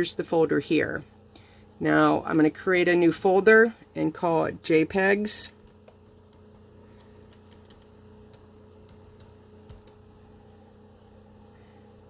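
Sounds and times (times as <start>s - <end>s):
keys tapped on computer keyboard: 7.2s - 10.0s.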